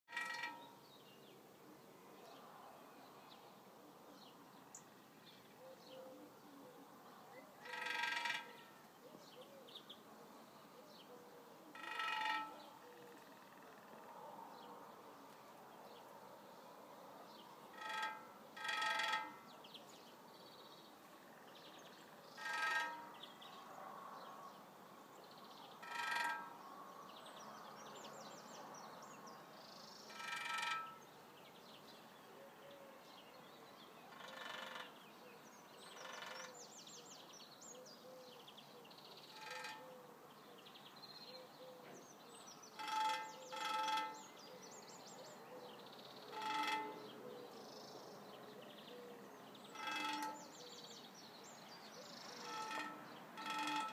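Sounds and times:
woodpecker drumming on metal: 0.1s - 0.8s, 7.6s - 8.8s, 11.7s - 13.6s, 17.7s - 19.8s, 22.3s - 23.4s, 25.8s - 26.7s, 30.1s - 31.1s, 39.2s - 40.0s, 42.6s - 44.4s, 46.2s - 47.2s, 49.7s - 50.8s, 52.3s - 53.9s.

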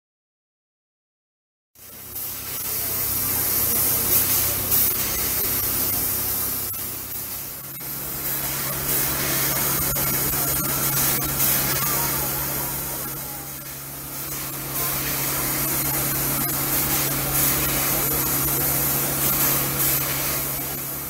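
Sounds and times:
steam locomotive hissing: 1.9s - 21.0s.

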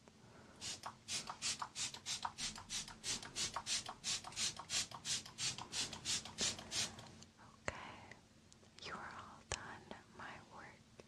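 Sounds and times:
spray bottle hissing sprays: 0.6s - 7.1s.

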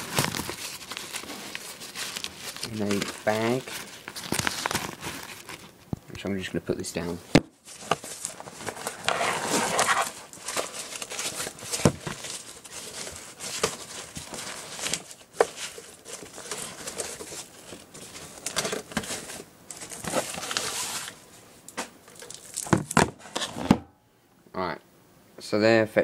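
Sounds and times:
bag rustling and crinkling: 0.0s - 5.8s, 7.6s - 21.4s.

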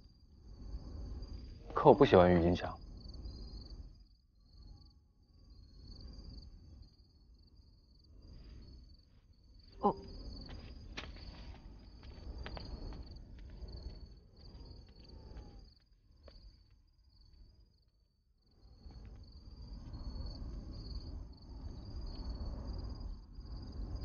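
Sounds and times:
crickets chirping: 0.0s - 24.0s
light footsteps: 10.0s - 16.8s.

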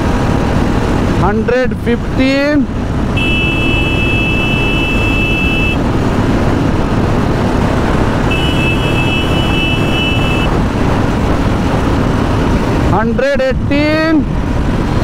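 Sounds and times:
heavy wind noise: 0.0s - 15.0s
horn steady tone: 3.1s - 5.8s, 8.2s - 10.6s.

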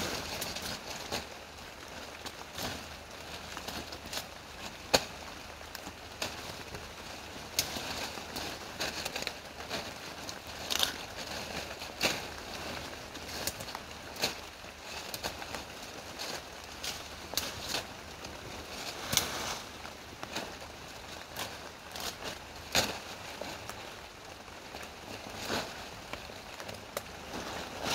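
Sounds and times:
leaves rustling: 0.0s - 27.9s
steady background hiss: 0.0s - 27.9s
stems snapping: 3.5s - 6.4s, 8.8s - 11.2s, 13.2s - 18.4s, 19.0s - 23.0s, 26.0s - 27.2s.

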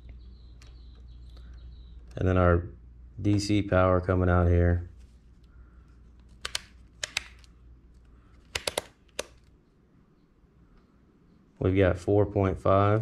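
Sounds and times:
test probes clicking on screws: 6.2s - 7.5s, 8.4s - 9.5s.

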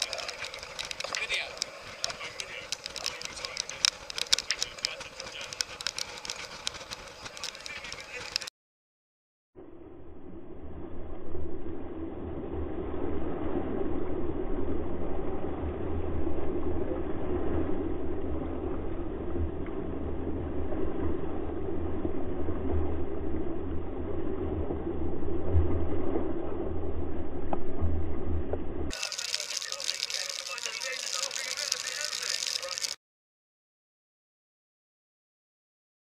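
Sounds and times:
water rushing and splashing: 0.0s - 8.5s, 28.9s - 33.0s.

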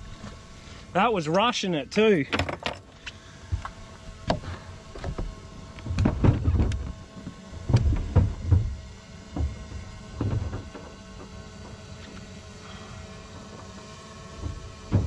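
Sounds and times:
footsteps thumping on a boat deck: 3.5s - 12.2s.

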